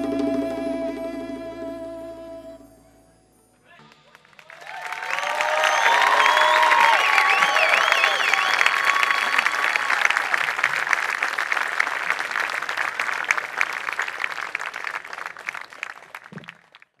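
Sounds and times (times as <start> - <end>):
audience applause: 3.8 - 17.0.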